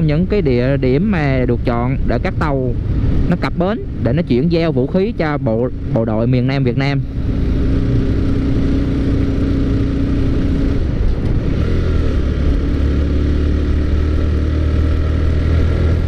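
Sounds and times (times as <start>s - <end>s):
motorcycle engine running: 5.3s - 16.0s.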